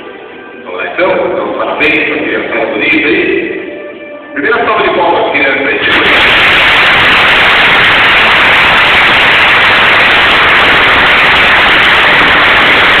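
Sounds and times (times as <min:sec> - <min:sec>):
loud even rushing noise: 0:05.6 - 0:13.0.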